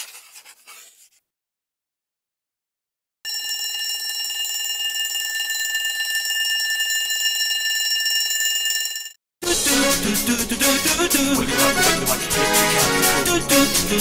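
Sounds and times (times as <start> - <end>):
alarm clock bell ringing: 3.3 - 9.2.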